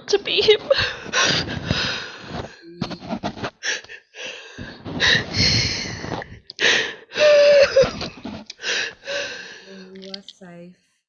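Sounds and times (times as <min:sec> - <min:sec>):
gasping breaths and sniffs: 0:00.7 - 0:02.6, 0:03.2 - 0:09.9
woman whimpering: 0:07.1 - 0:08.8
woman crying: 0:07.1 - 0:09.2.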